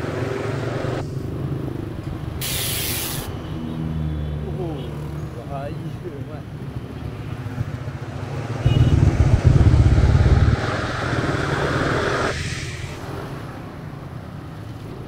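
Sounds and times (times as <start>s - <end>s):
road and wind noise: 0.0s - 15.0s
wind rumble on microphone: 8.6s - 13.3s.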